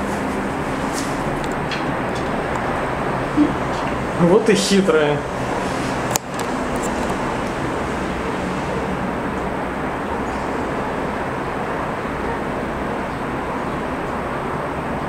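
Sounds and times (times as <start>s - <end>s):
sharp click: 6.1s - 7.1s.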